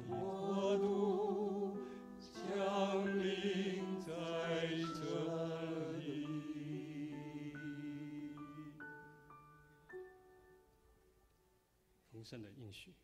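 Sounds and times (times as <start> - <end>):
men and women singing: 0.0 - 8.9
piano: 0.0 - 12.0.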